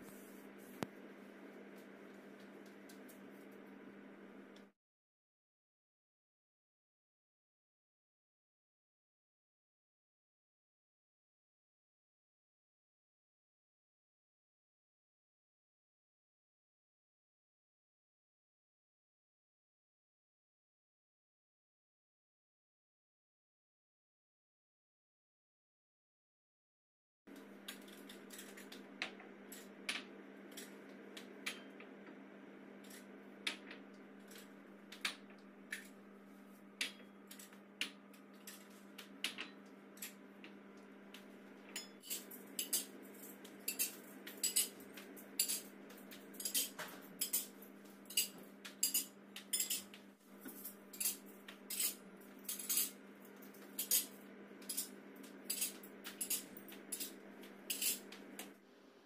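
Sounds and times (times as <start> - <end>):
dishes clinking on table: 43.7 - 44.8, 46.4 - 53.0, 53.7 - 54.9, 55.5 - 58.1.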